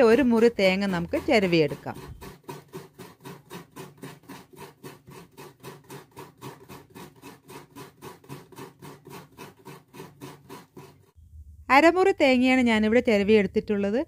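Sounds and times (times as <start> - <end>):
coconut rasping on a scraper: 0.0 - 11.2.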